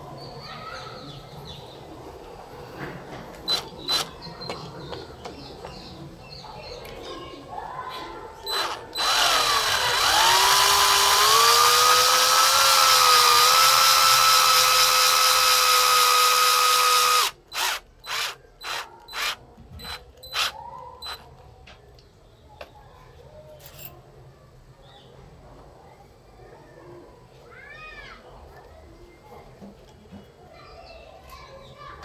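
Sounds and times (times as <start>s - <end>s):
cordless drill driving screw into wood: 3.5s - 4.1s, 8.5s - 21.2s
short drill trigger bursts: 3.5s - 4.1s, 8.5s - 21.2s.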